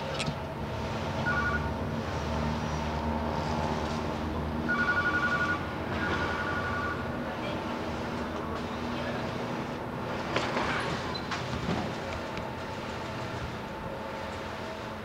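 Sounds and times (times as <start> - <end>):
two-tone high ringing: 1.2 - 1.8, 4.7 - 7.0.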